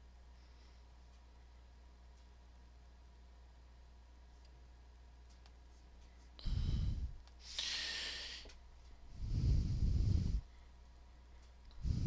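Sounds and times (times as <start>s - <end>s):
faint steady hum: 0.0s - 12.0s
person breathing into microphone: 6.4s - 10.7s, 11.7s - 12.0s.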